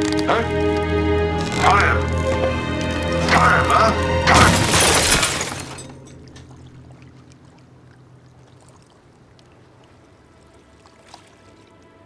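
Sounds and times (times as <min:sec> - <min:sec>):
crate bursting open: 0:04.2 - 0:06.3.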